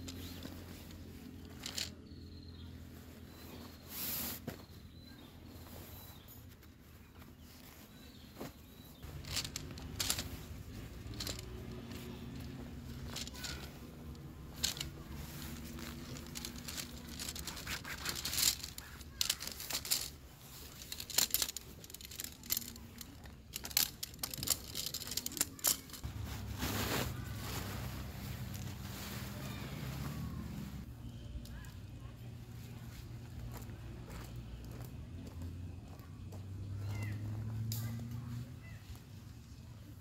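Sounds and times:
tent fabric rustling: 0:00.0 - 0:30.9
tent poles clicking and rattling: 0:00.0 - 0:34.8, 0:36.6 - 0:39.6.

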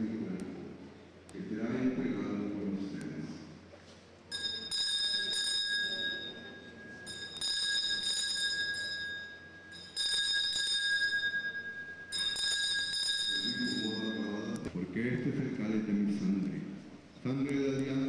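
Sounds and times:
hand bells shaken: 0:04.3 - 0:14.4.

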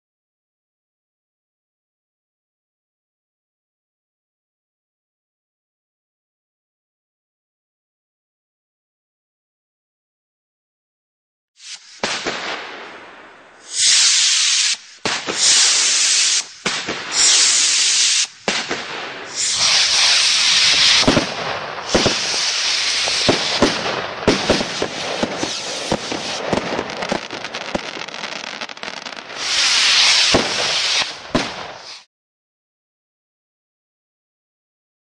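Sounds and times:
firework bangs and crackling: 0:11.6 - 0:32.1
firework rockets hissing: 0:11.6 - 0:32.1.

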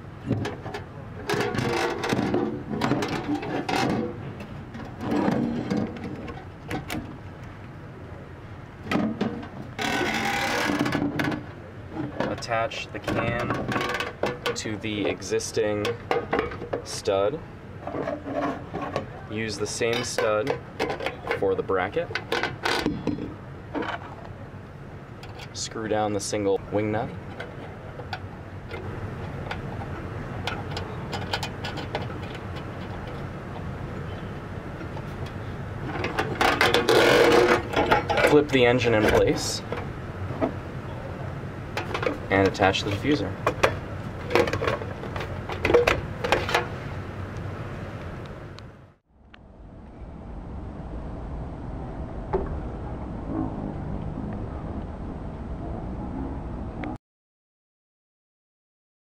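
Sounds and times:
low background hum: 0:00.0 - 0:57.0
metal knocks and rattles: 0:00.3 - 0:07.2, 0:08.8 - 0:15.2, 0:15.8 - 0:17.0, 0:27.2 - 0:34.2, 0:34.8 - 0:40.6, 0:41.7 - 0:46.8
metal conduit scraping: 0:00.5 - 0:07.0, 0:09.1 - 0:17.1, 0:17.8 - 0:24.1, 0:27.2 - 0:40.5.

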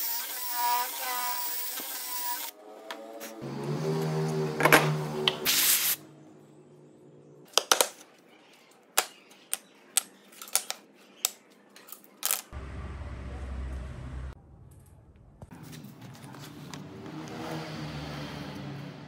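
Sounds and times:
wooden pieces clacking on bench: 0:07.5 - 0:08.1
steady machine hum: 0:12.6 - 0:15.4
low hum: 0:12.6 - 0:15.6.

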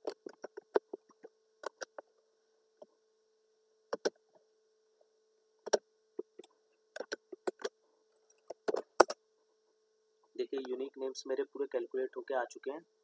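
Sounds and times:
faint steady hum: 0:00.0 - 0:13.0
keyboard and mouse clicking: 0:07.0 - 0:07.7.

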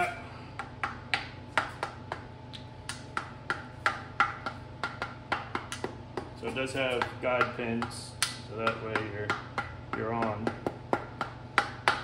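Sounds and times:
rubber mallet tapping metal: 0:03.1 - 0:12.0.

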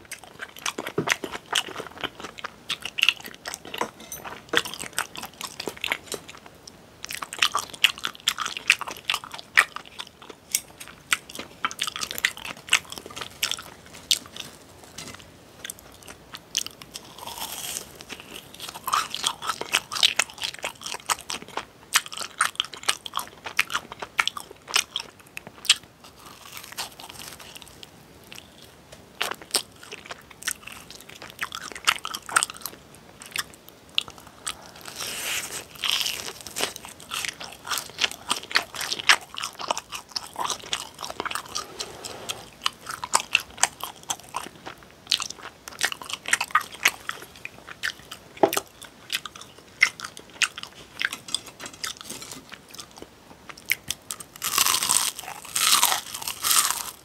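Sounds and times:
crunching fried snacks: 0:00.0 - 0:41.7, 0:42.4 - 0:57.0.

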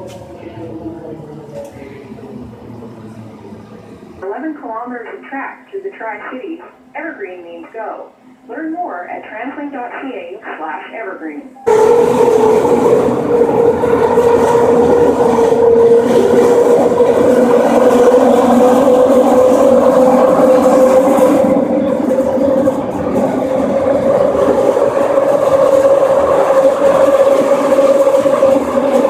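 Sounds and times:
train rumbling with rising whine: 0:00.0 - 0:04.9, 0:11.6 - 0:29.0.

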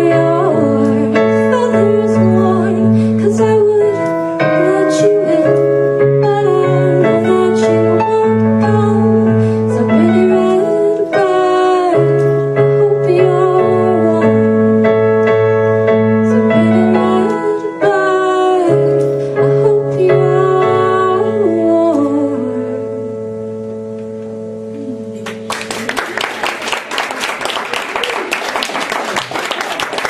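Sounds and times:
woman singing: 0:00.0 - 0:15.0, 0:16.1 - 0:23.3
held keyboard chords: 0:00.0 - 0:27.8.

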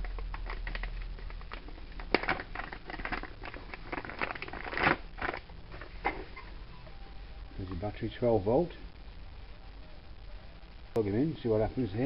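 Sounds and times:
battery pack being handled: 0:00.0 - 0:06.2.

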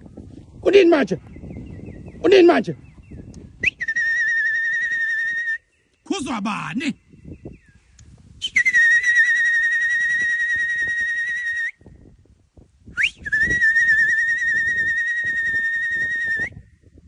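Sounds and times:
person whistling: 0:03.6 - 0:05.7, 0:08.4 - 0:11.7, 0:13.0 - 0:16.6.

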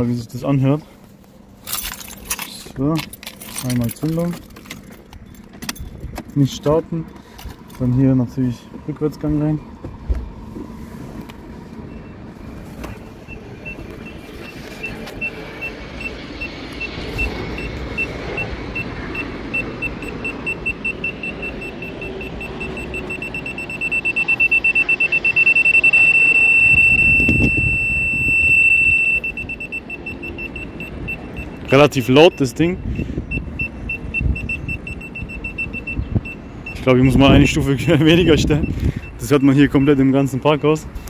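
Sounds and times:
parking sensor beeping: 0:11.8 - 0:40.6.

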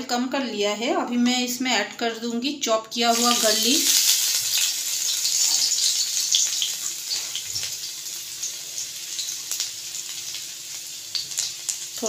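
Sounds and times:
garlic sizzling in oil: 0:03.0 - 0:12.0.

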